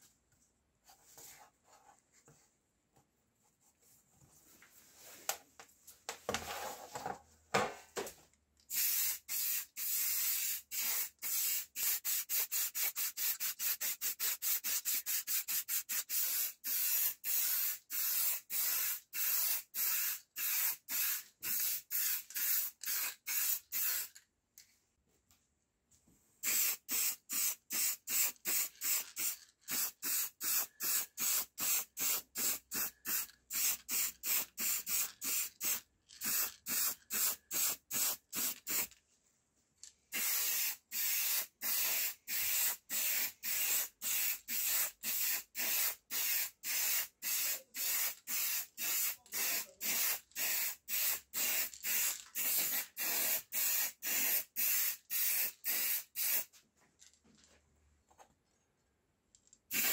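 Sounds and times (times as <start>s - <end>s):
spray paint hissing in bursts: 8.7s - 24.1s, 26.4s - 38.9s, 40.1s - 56.5s, 59.7s - 59.9s.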